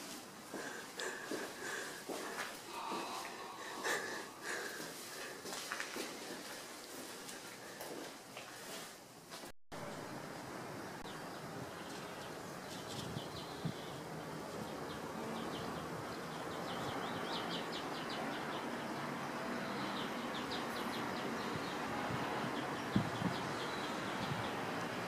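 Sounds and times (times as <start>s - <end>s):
steady background hiss: 0.0s - 16.7s.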